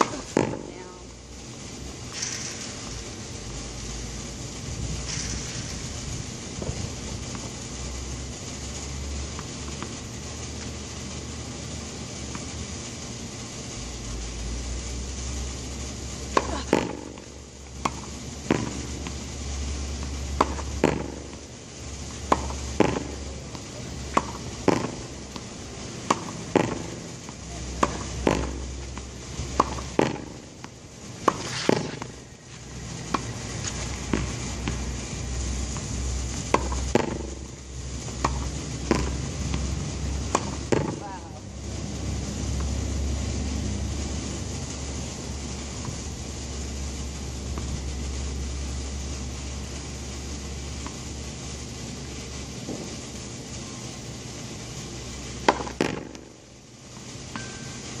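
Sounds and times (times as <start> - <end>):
racket striking tennis ball: 0.0 - 0.7, 16.3 - 19.2, 20.0 - 21.4, 22.1 - 35.0, 36.5 - 37.5, 38.1 - 39.6, 40.2 - 41.0, 55.4 - 56.2
low rumble with hiss: 0.0 - 58.0
ball rebounding off wall: 16.3 - 19.2, 20.0 - 21.4, 22.2 - 32.2, 38.1 - 41.2, 55.4 - 56.2.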